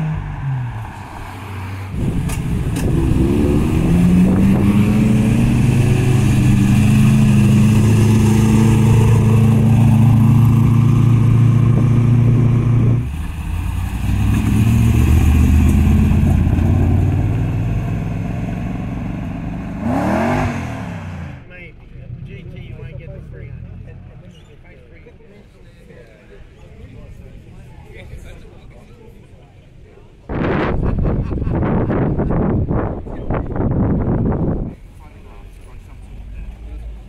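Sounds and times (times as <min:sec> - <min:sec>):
car engine revving: 0:00.0 - 0:24.3
car engines pulling away: 0:00.0 - 0:24.7.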